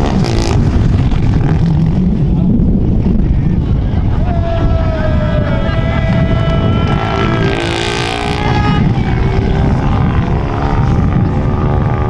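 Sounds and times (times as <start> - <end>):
rally car engine revving: 0.0 - 3.1, 6.5 - 12.0
wind on microphone: 0.0 - 12.0.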